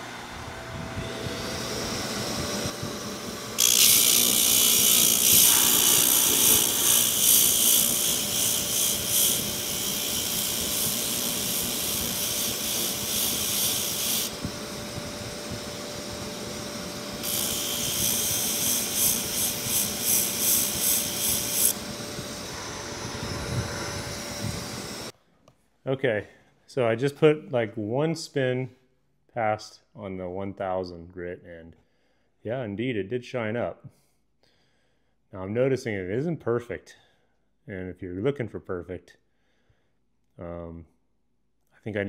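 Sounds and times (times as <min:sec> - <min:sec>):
electric motor humming: 0:00.0 - 0:25.1
gritty hiss of stone sanding: 0:03.6 - 0:14.4.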